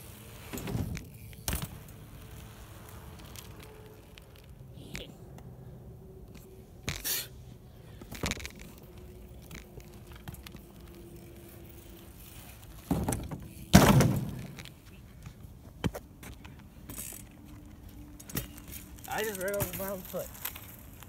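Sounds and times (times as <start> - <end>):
bike landing thuds: 0.4 - 2.0, 12.8 - 14.8
light bike knocks: 12.8 - 17.2.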